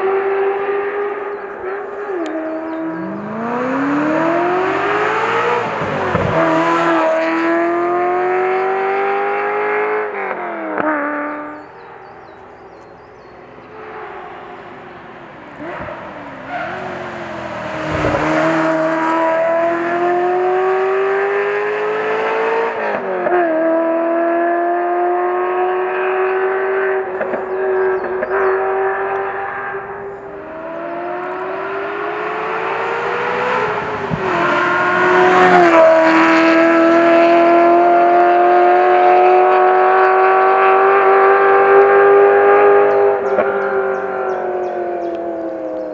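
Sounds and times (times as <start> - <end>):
car engine accelerating hard: 0.0 - 45.9.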